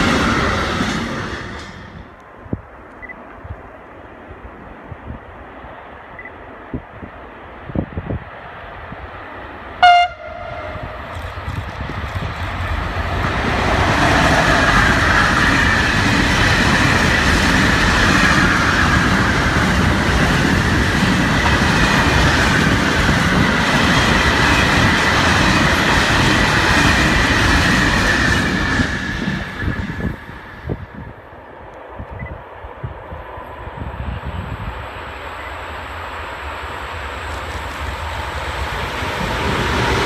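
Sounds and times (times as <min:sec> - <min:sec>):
locomotive horn blast: 0:09.8 - 0:11.1.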